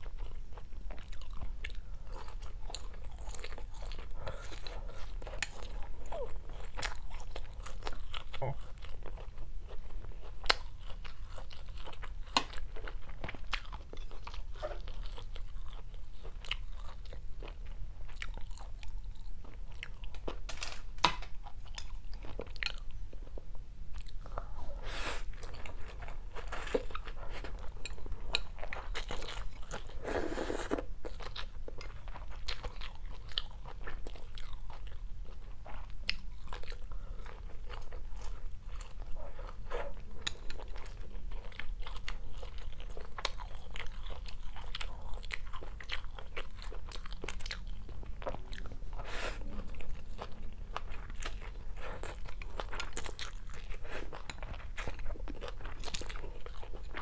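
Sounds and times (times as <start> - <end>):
person chewing food: 0.0 - 57.0
noodle slurping: 30.0 - 30.8.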